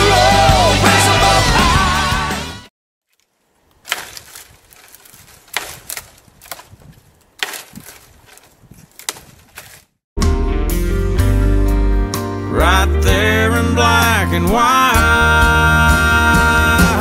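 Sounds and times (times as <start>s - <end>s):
branches scraping and rustling: 3.0s - 10.0s
stick cracking dry branches: 3.0s - 10.0s.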